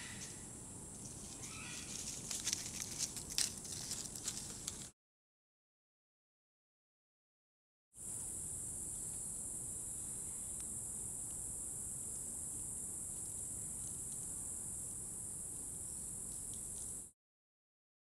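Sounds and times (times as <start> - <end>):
insects droning: 0.0 - 4.9, 8.0 - 17.1
faint ticks: 16.3 - 16.9.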